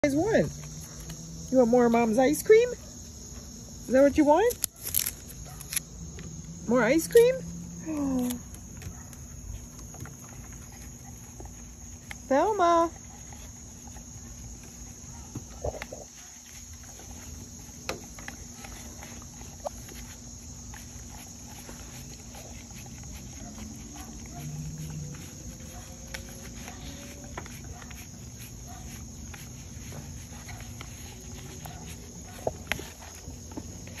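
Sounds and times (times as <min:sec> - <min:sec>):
insect chirr: 0:00.0 - 0:34.0
dogs lapping ice cream: 0:09.7 - 0:34.0.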